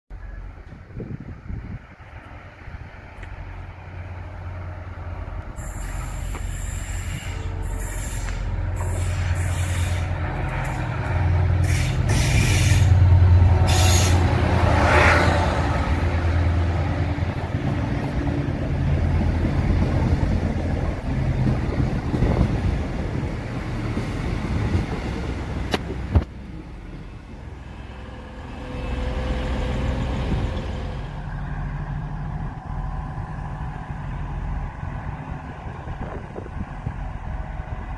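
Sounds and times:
train engine and wheel rumble: 0.1 - 37.9
brake hisses and squeals: 5.6 - 10.2, 11.6 - 13.0.

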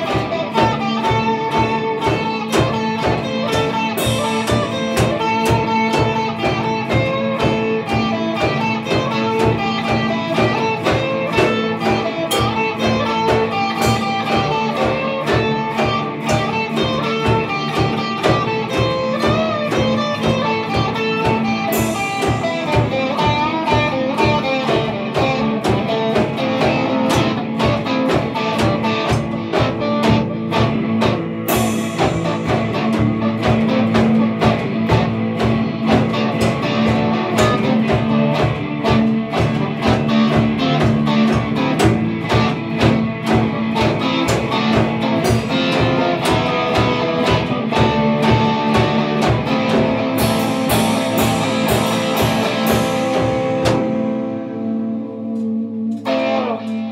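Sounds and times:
drum beat: 0.0 - 55.2
overdriven electric guitar: 0.0 - 56.9
cymbal crash: 21.7 - 23.5, 31.5 - 33.3.

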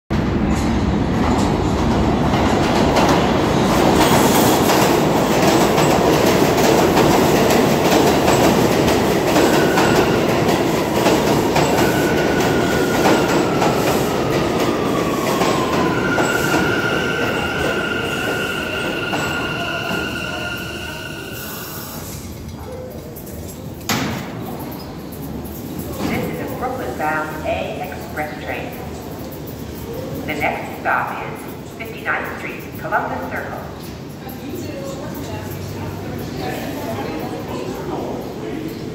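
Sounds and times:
train wheels rumbling on rails: 0.1 - 38.9
high brake squeal: 16.0 - 22.3.

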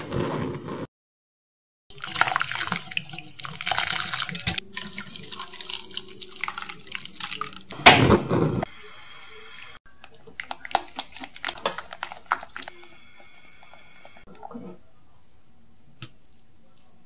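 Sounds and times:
liquid trickling through sieve: 1.9 - 7.7
milk bubbling in saucepan: 1.9 - 7.7, 9.8 - 14.9.

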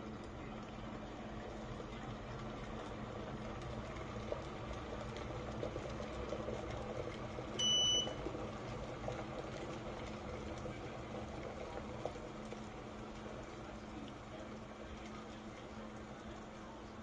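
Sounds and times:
kettle water boiling: 0.0 - 17.0.

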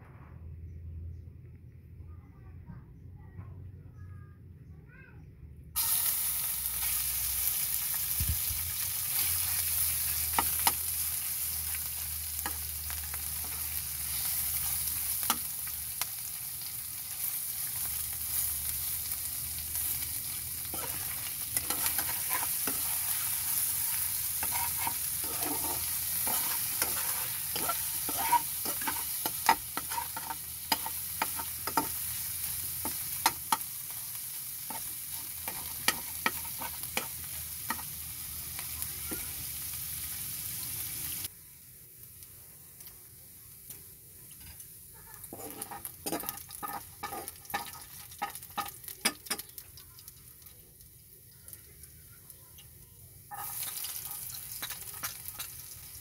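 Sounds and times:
meat sizzling in hot oil: 5.8 - 42.4, 45.0 - 52.0, 53.3 - 56.0
metal spatula scraping pan: 20.7 - 32.1, 34.7 - 37.9, 45.2 - 48.8, 53.3 - 55.6.

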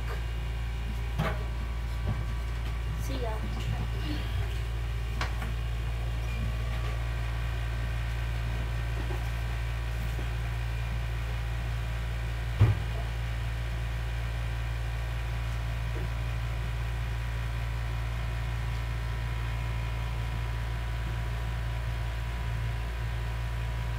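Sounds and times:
low hum: 0.0 - 23.9
brief thump: 12.6 - 13.0.

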